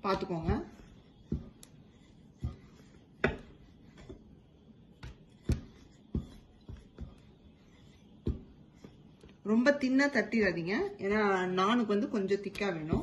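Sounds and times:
rolling pin knocking on stone: 3.2 - 3.5, 12.6 - 13.0.

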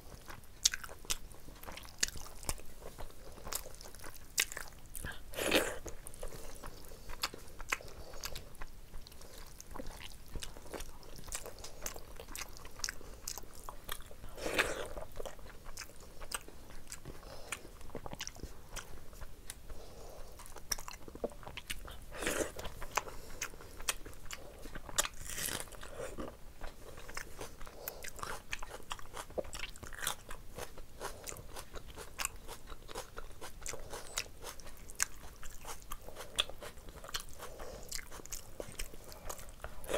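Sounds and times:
person chewing with wet mouth clicks: 0.2 - 19.7.

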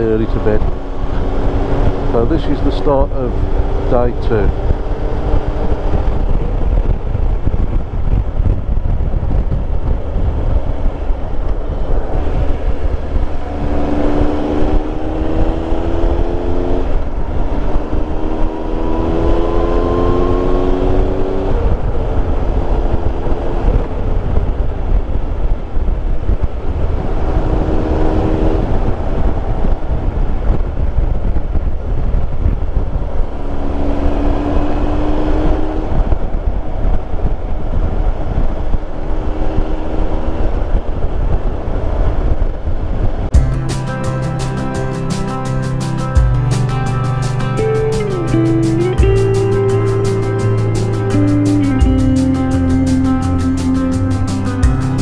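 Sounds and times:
motorcycle engine: 0.0 - 42.7, 43.3 - 55.0
wind on microphone: 0.0 - 43.5
road rumble: 0.0 - 55.0.

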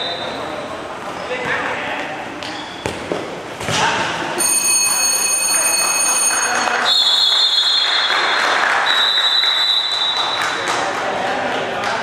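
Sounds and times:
shrill whistle blasts: 0.0 - 0.5, 6.8 - 10.5.

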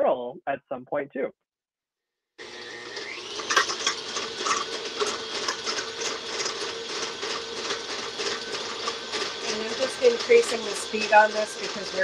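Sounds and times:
stand mixer motor hum: 2.4 - 12.0
mixer paddle rattling: 2.8 - 12.0.

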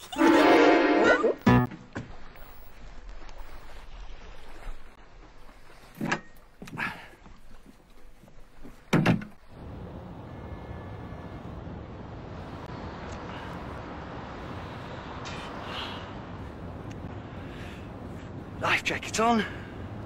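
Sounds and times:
wooden door banging shut: 8.9 - 9.3.

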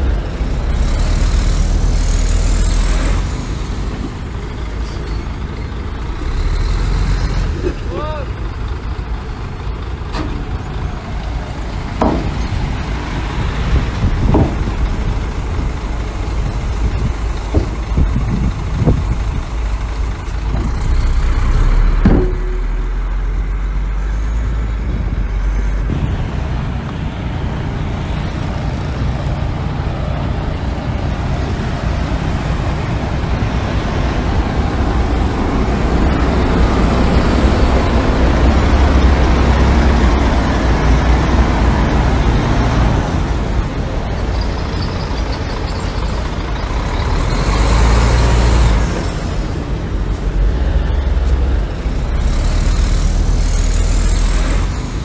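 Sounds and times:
heavy diesel engines running: 0.0 - 55.0
sharp knock: 22.0 - 22.8.

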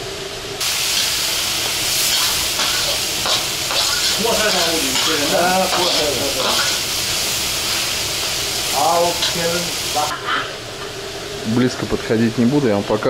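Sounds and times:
meat and carrots sizzling in oil: 0.6 - 10.1.

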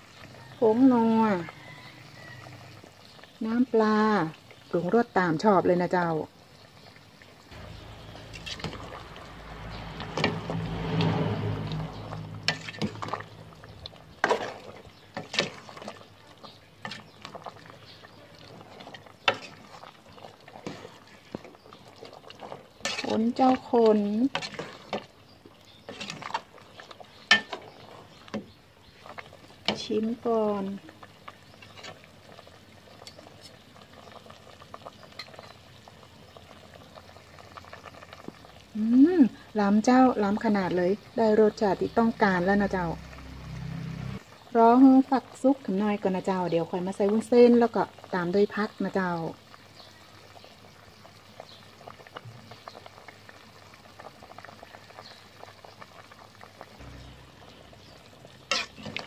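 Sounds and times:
curry bubbling in a pot: 0.0 - 59.0
liquid sloshing in pot: 7.7 - 35.6.

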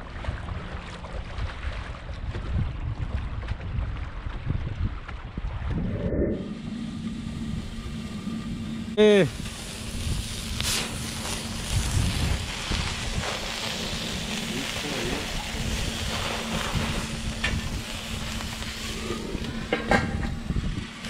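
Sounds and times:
wind buffeting the microphone: 0.2 - 8.7, 9.3 - 21.0
sausages sizzling on a grill: 9.0 - 21.0.

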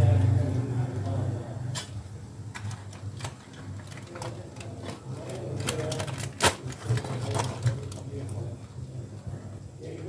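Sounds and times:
aluminium foil crinkling: 2.5 - 8.6.

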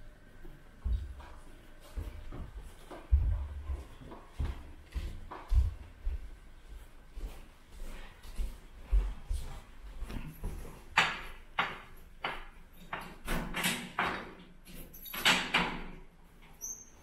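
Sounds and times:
footsteps on hard floor: 0.8 - 11.3.

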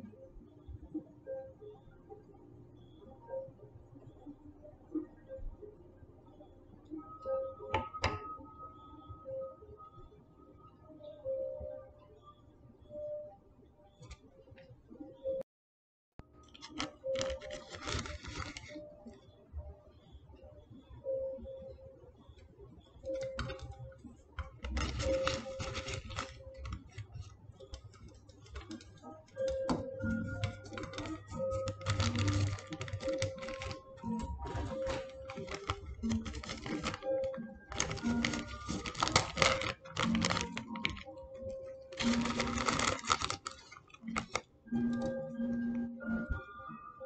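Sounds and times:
soft background music: 0.0 - 15.4, 16.2 - 47.0
plastic bag crinkling: 16.5 - 18.8, 24.4 - 28.8, 30.2 - 44.4
dried herbs crackling: 30.3 - 41.1, 41.9 - 44.4.

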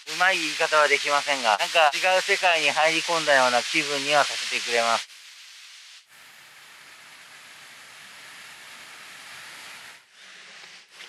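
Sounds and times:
waterfall rushing into pond: 0.1 - 5.0.

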